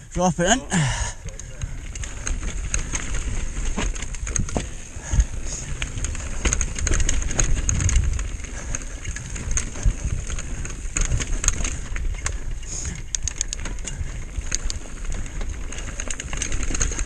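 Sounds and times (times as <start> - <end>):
bike rattling: 0.0 - 17.0
tyres crunching over stones: 0.4 - 8.0
wind rumble on microphone: 1.1 - 17.0.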